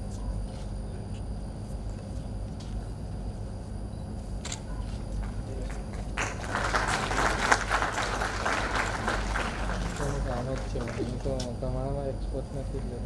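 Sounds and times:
audience applauding: 5.2 - 11.5.

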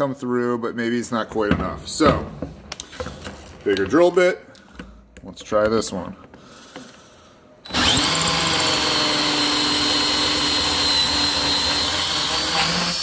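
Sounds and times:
cordless drill whining: 7.6 - 13.0.

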